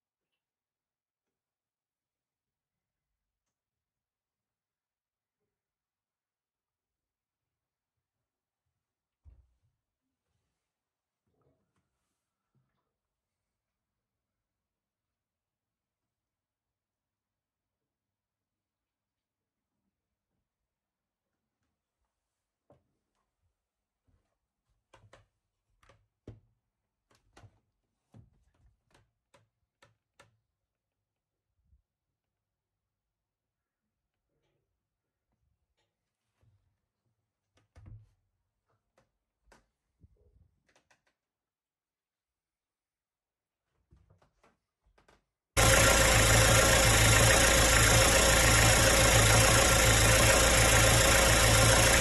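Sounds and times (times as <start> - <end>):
faint irregular clicks and knocks: 38.7 - 41.2
boat engine running: 45.6 - 52.0.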